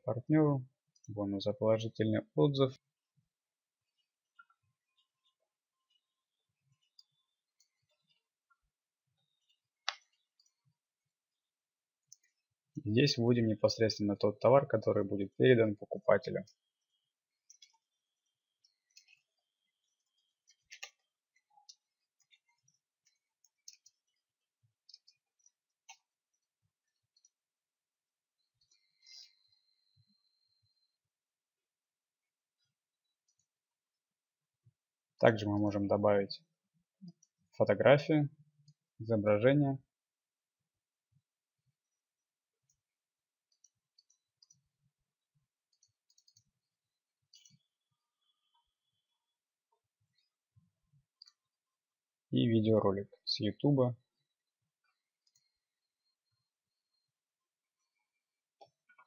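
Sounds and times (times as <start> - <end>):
computer mouse clicks: 17.4 - 17.9, 20.1 - 24.2, 43.4 - 44.7, 45.7 - 46.6, 54.9 - 55.6
computer keyboard typing: 45.7 - 46.5.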